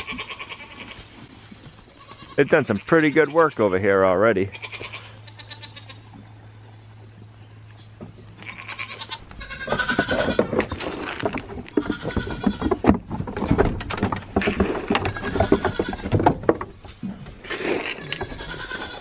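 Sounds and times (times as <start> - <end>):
goats bleating: 0.0 - 1.2, 1.9 - 6.2, 8.4 - 12.9, 14.4 - 16.2, 17.4 - 19.0
rustling: 0.0 - 2.7, 8.4 - 19.0
knocking: 9.6 - 16.9.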